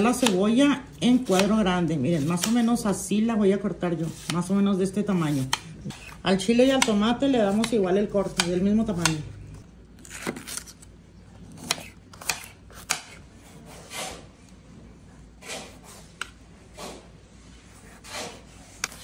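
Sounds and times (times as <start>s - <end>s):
knife slicing swishes: 15.4s - 16.2s, 17.8s - 19.0s.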